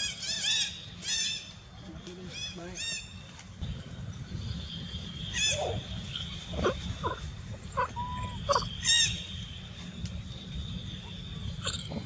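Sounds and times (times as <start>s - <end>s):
monkey high arched call: 5.3s - 9.3s
monkeys squeaking and chirping: 5.3s - 9.3s.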